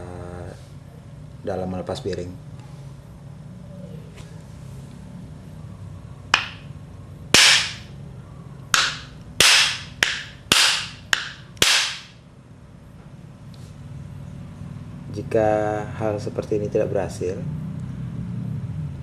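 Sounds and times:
metal knocks on wooden block: 6.4s - 6.7s, 7.4s - 7.9s, 8.8s - 12.1s.

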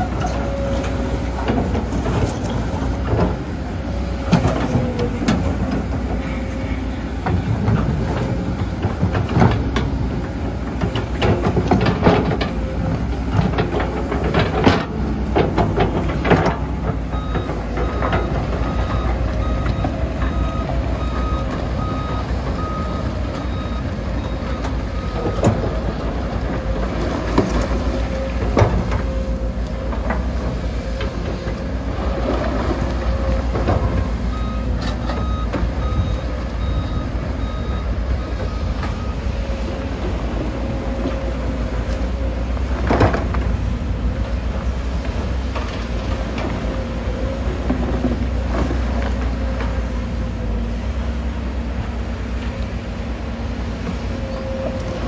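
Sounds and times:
clanks of tracks and bucket: 0.0s - 55.0s
excavator diesel engine running: 0.0s - 55.0s
travel alarm beeping: 34.3s - 39.5s.

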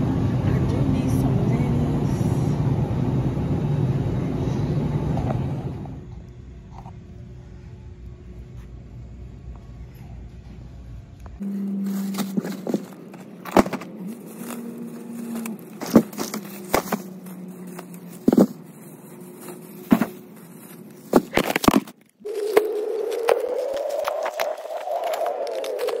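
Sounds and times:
steady low hum: 0.0s - 26.0s
plastic bags rustling and thumping: 11.6s - 23.5s.

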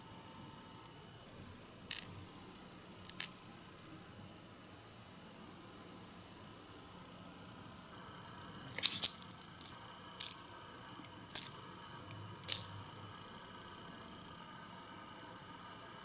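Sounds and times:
plastic miniatures clicking: 3.1s - 3.3s, 8.8s - 10.4s, 11.3s - 11.5s, 12.4s - 12.7s.

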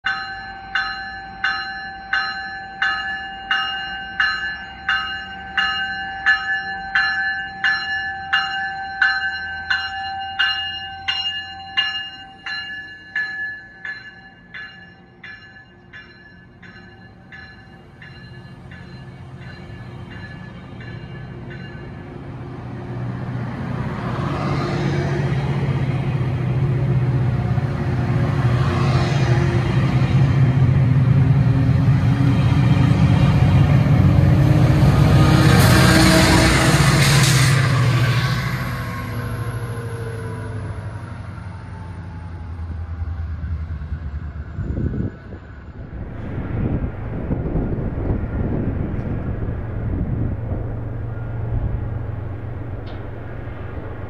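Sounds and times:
crossing bell ringing: 0.0s - 22.3s
train rumble: 0.1s - 54.0s.

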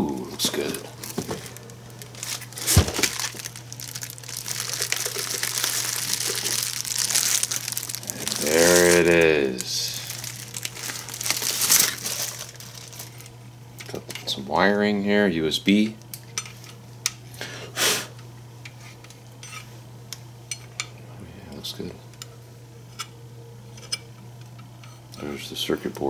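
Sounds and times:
bubble wrap crinkling: 0.1s - 13.4s.

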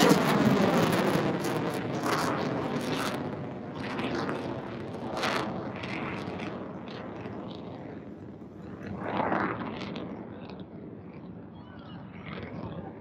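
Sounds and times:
fighter jet engine rumble overhead: 0.0s - 13.0s.

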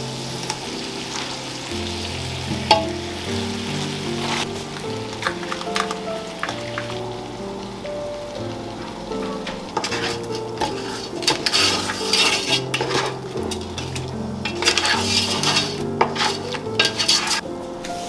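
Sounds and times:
utensil scraping frying pan: 0.0s - 6.9s, 8.7s - 18.0s
food sizzling: 0.0s - 18.0s
soft background music: 0.0s - 18.0s
utensil clinking against pan: 9.2s - 17.4s.

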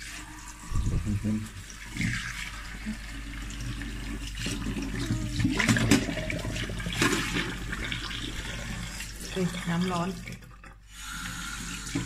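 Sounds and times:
tap water running into sink: 0.0s - 12.0s.

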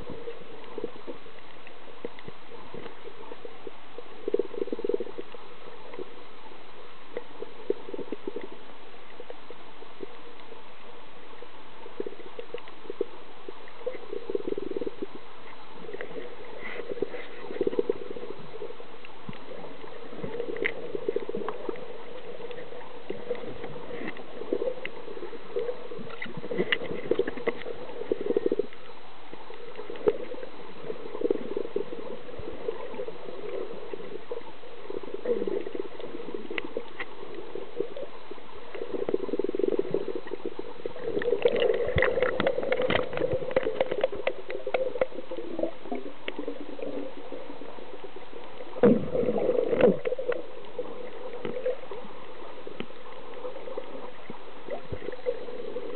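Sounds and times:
faint clicks and crackles: 0.0s - 55.9s
water sloshing and gurgling underwater: 0.0s - 55.9s.

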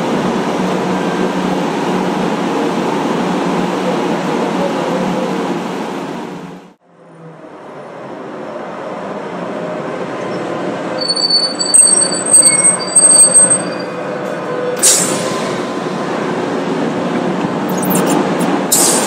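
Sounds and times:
tram rumbling on rails: 0.0s - 19.0s
steel wheel squeal: 10.9s - 15.2s, 17.7s - 19.0s.

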